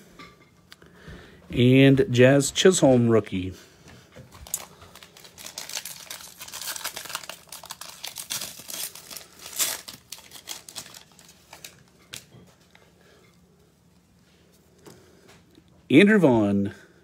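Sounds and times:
plastic wrapper crinkling and tearing: 0:04.3 - 0:12.4.

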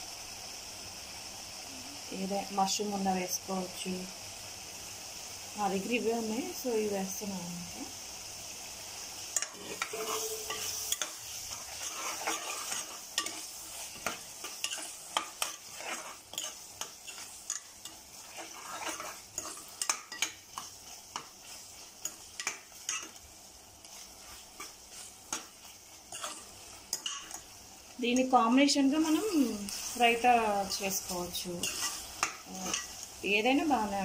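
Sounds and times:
gravy sizzling: 0:00.0 - 0:34.0
metal ladle scraping pot: 0:09.4 - 0:13.4, 0:18.2 - 0:20.3.

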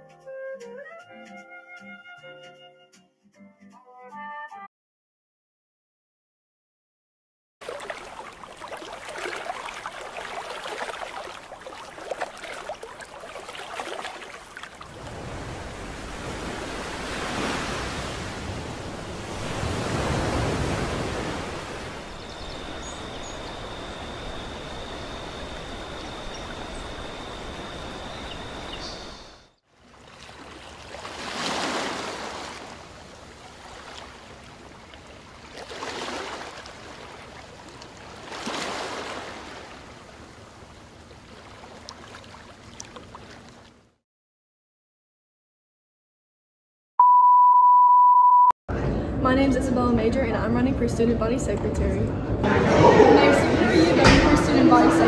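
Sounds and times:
rushing water and surf: 0:07.6 - 0:43.8, 0:52.4 - 0:55.0.

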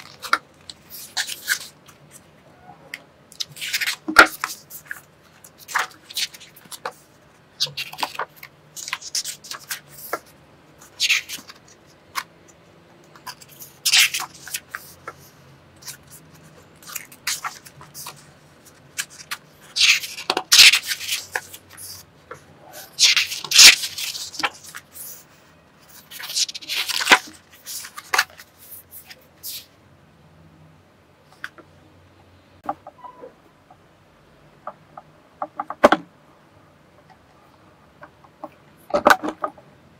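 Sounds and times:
book pages turning: 0:00.0 - 0:02.4, 0:03.3 - 0:29.7.

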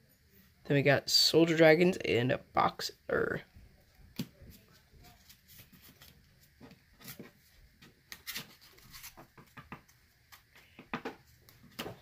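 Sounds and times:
trading cards rustling: 0:08.1 - 0:09.6.

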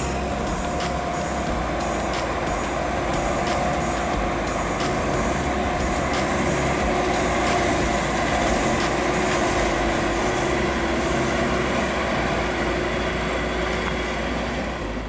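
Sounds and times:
train wheels rolling: 0:00.0 - 0:11.4
electric locomotive hum: 0:00.0 - 0:15.0.

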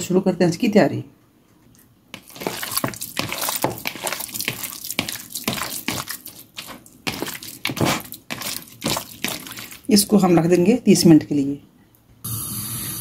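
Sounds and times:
hand kneading raw chicken: 0:02.2 - 0:10.2.

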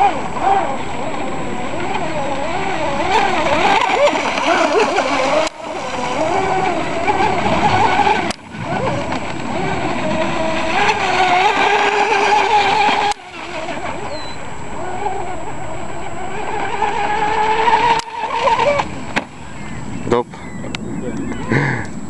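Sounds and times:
model boat motor whining: 0:00.0 - 0:22.0.

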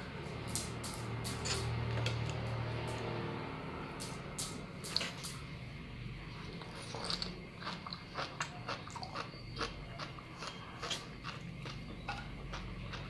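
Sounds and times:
mouth chewing seaweed: 0:06.6 - 0:11.9.

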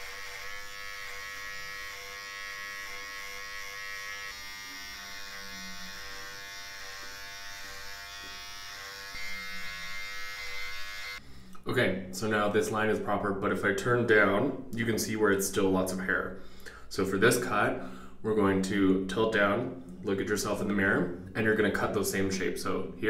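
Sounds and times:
electric beard trimmer buzzing: 0:00.0 - 0:11.2.

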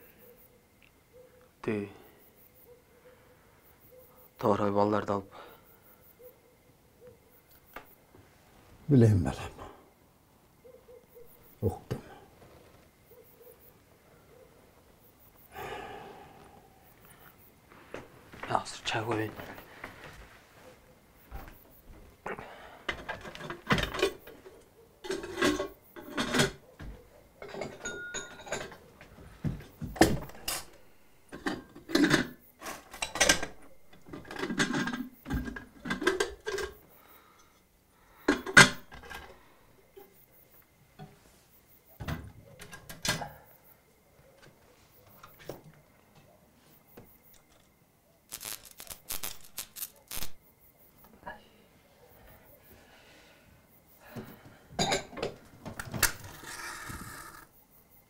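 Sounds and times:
dishes knocking and clinking: 0:25.1 - 0:30.7, 0:31.3 - 0:36.8, 0:38.3 - 0:39.3, 0:54.2 - 0:55.4.

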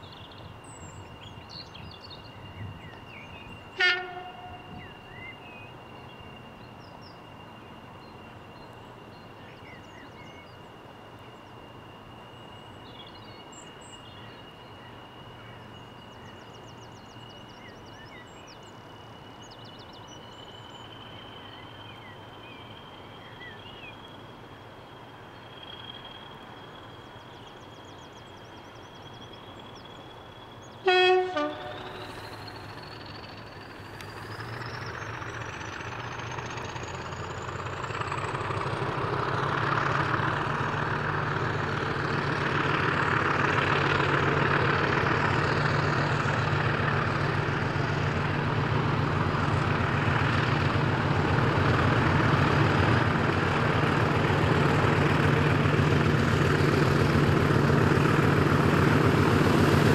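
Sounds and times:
diesel locomotive running: 0:00.0 - 0:59.9
locomotive horn blast: 0:03.7 - 0:05.0, 0:30.8 - 0:32.4.

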